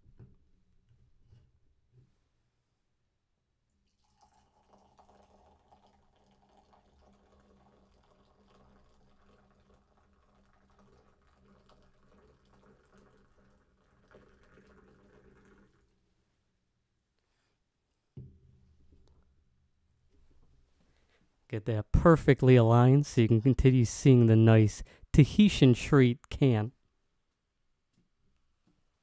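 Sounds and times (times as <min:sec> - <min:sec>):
drink pouring into a glass: 0:03.8 - 0:15.9.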